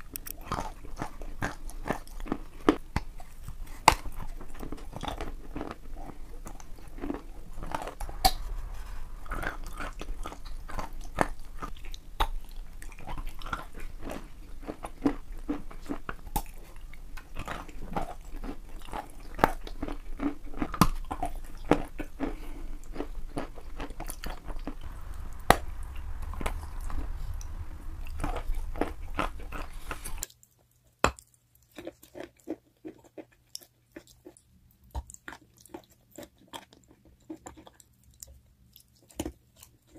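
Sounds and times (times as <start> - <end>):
chewing and crunching chalk: 0.0 - 25.0
low hum: 6.4 - 14.5, 22.7 - 30.2.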